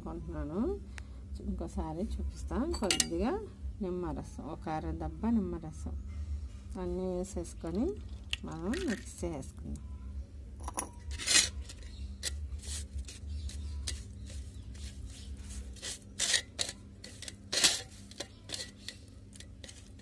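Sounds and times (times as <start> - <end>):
fingers scraping metal plate: 11.1 - 20.0
paste squishing: 11.2 - 20.0.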